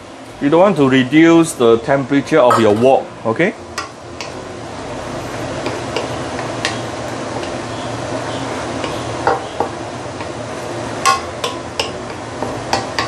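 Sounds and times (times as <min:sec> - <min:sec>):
leaves sizzling in a wok: 0:00.0 - 0:13.0
spatula stirring leaves: 0:03.7 - 0:13.0
spatula knocking against wok: 0:08.8 - 0:10.4, 0:11.0 - 0:13.0.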